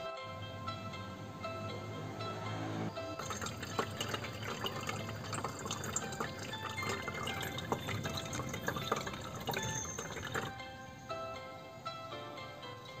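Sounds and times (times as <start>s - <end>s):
water trickling from fountain: 2.9s - 10.6s.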